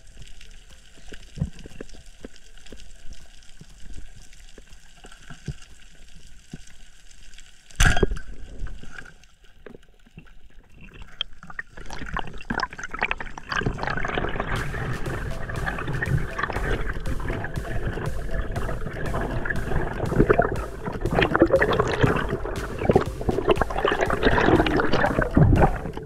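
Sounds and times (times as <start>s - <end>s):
water rushing past: 14.0s - 26.0s.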